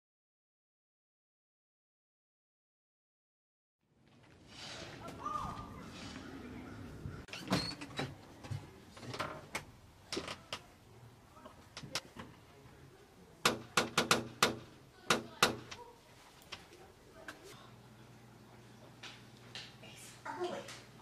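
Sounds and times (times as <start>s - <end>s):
sharp knocks on door: 13.4s - 15.8s.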